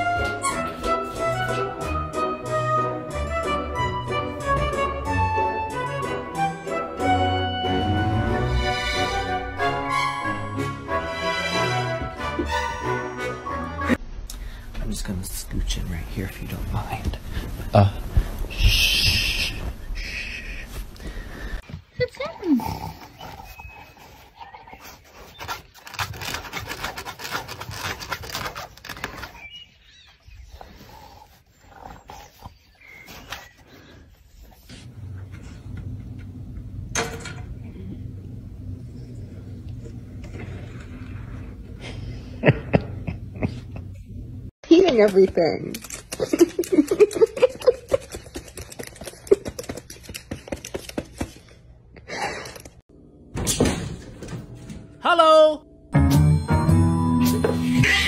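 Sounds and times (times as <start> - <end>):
dog scraping mesh fabric: 25.2 - 29.4
bird feet clattering keyboard keys: 45.0 - 51.3.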